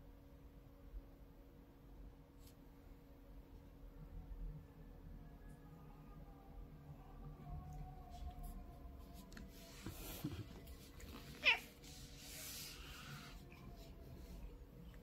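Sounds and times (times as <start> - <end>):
cat meowing: 11.3 - 11.8.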